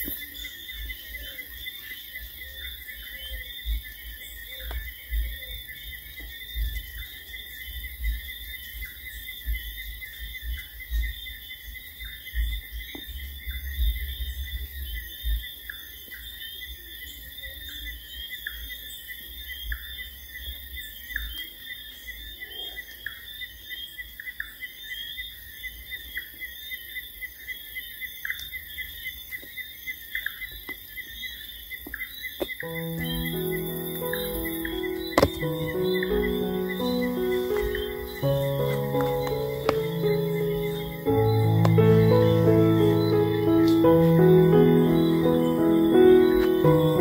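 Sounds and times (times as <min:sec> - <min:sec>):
insect chorus buzzing: 0:27.7 - 0:47.0.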